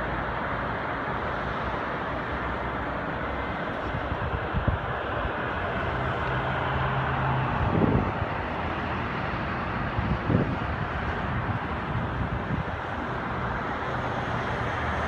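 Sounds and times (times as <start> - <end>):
outdoor background roar: 0.0 - 15.0
wind buffeting microphone: 3.8 - 5.5, 7.3 - 13.3.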